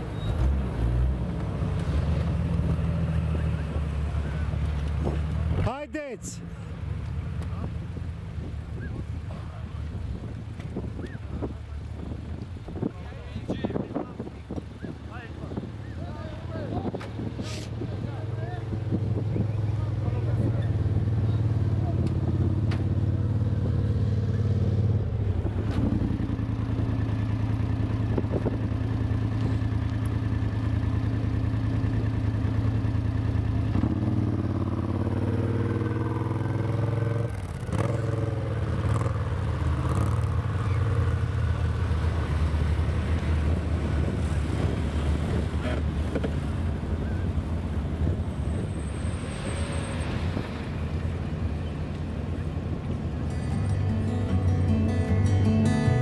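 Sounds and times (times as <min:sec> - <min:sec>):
off-road vehicle engines: 0:00.0 - 0:56.0
quad engine passing by: 0:14.8 - 0:56.0.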